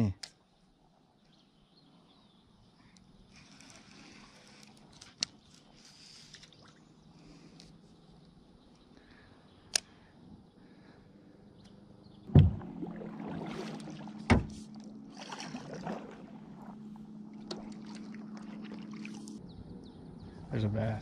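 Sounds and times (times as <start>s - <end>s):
steady low hum: 5.9s - 21.0s
knocks on kayak hull: 12.3s - 12.7s, 14.3s - 14.6s.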